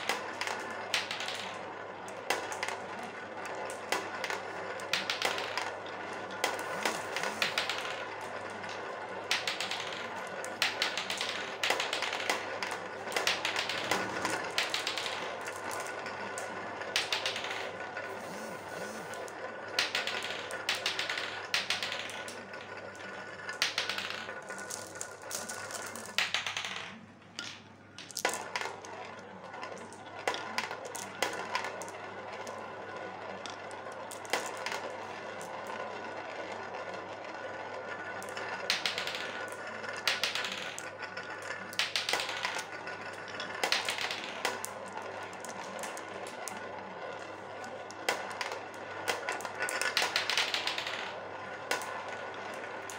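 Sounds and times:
marbles clicking together: 0:00.0 - 0:52.9
marbles rolling in plastic bowl: 0:00.0 - 0:52.9.

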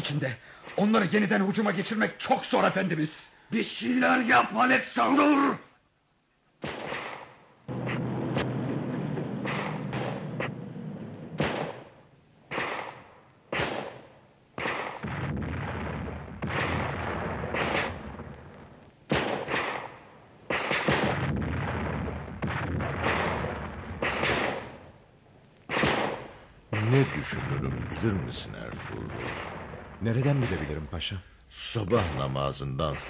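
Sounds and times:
heavy cannon shots: 0:06.6 - 0:25.0, 0:25.7 - 0:30.9.

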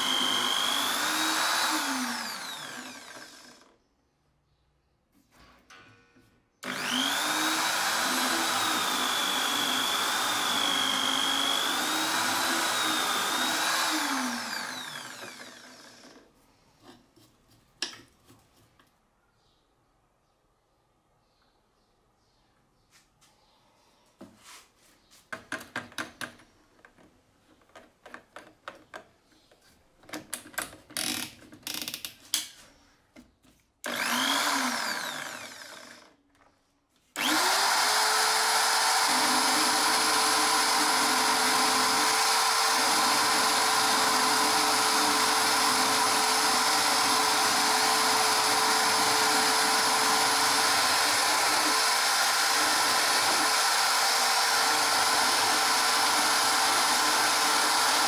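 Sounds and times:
drill press motor running: 0:00.0 - 0:03.7, 0:06.6 - 0:16.2, 0:33.9 - 0:36.1, 0:37.2 - 0:58.0.

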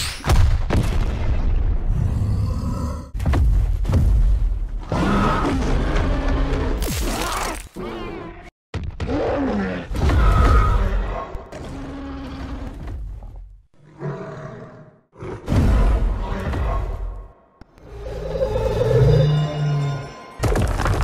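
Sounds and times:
creature roars and grunts: 0:01.9 - 0:03.2, 0:04.8 - 0:12.8
music: 0:18.4 - 0:21.0.

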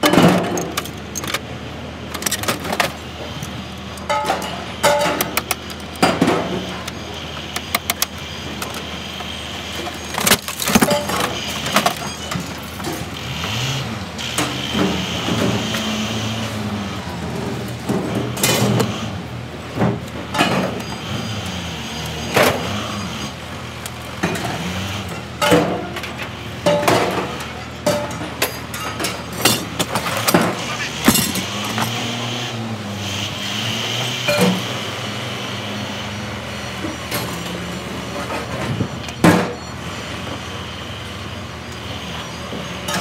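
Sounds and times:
engine revving: 0:12.8 - 0:17.5, 0:30.5 - 0:36.2.

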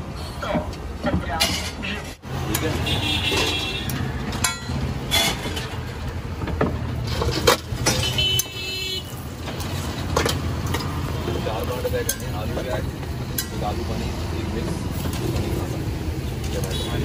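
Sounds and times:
street traffic hum: 0:00.0 - 0:17.0
utensils scraping iron griddle: 0:01.6 - 0:06.0.

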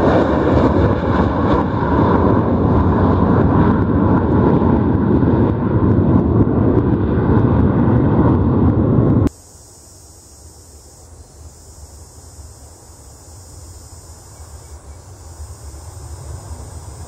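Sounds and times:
distant jet engine rumble: 0:00.0 - 0:17.0
steady high hiss: 0:09.3 - 0:17.0.

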